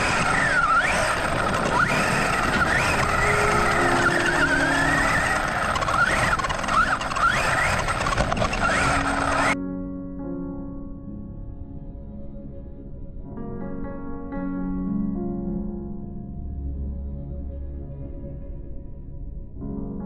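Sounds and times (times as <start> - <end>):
electric motor whining: 0.0 - 9.6
tyres on gravel: 0.0 - 9.6
wind: 0.0 - 9.6.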